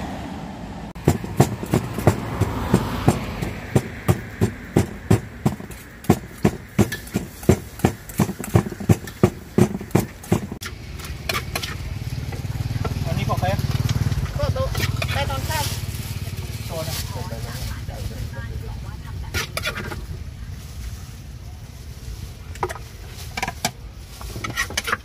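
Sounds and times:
pestle pounding in clay mortar: 1.0s - 13.0s.

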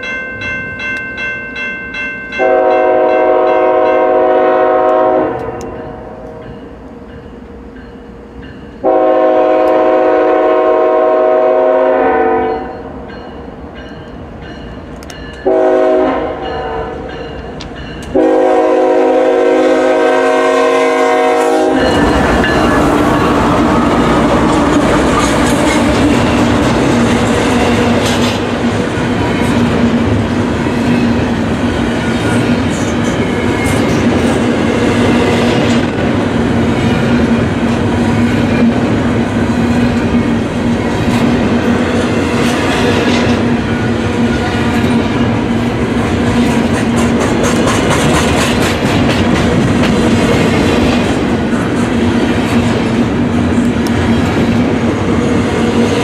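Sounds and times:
train passing close: 0.0s - 56.0s
locomotive air horn blasts: 2.4s - 5.6s, 8.8s - 12.7s, 15.4s - 17.1s, 18.1s - 22.1s
clickety-clack of wheels on rails: 13.0s - 19.1s, 21.2s - 56.0s.

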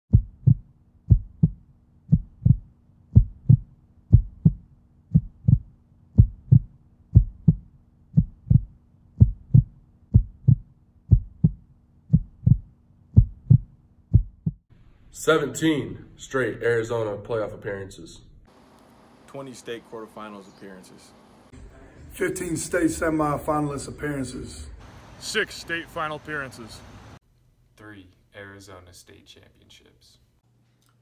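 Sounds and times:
heartbeat thumps: 0.1s - 14.6s.

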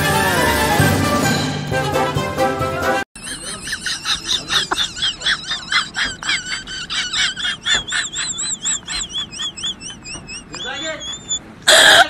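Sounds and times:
high-pitched warbling squeal: 8.3s - 12.0s.

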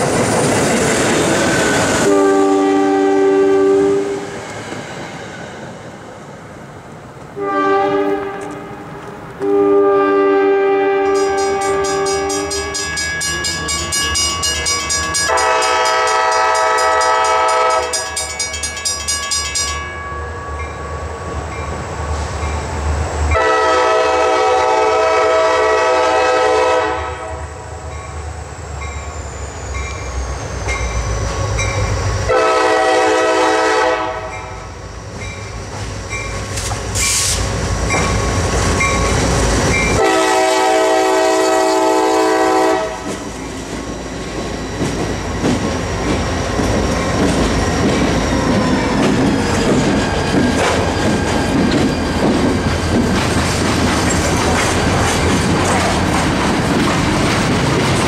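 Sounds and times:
locomotive air horn blasts: 2.0s - 4.3s, 7.4s - 8.8s, 9.4s - 12.5s, 15.3s - 18.0s, 23.3s - 27.4s, 32.3s - 34.5s, 40.0s - 43.1s.

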